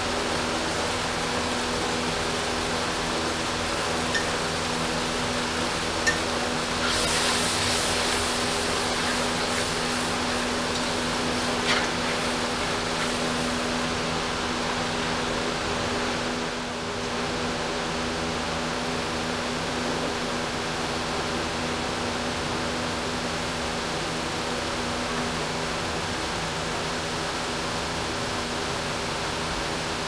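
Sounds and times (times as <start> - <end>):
steady hiss and low hum: 0.0 - 30.0.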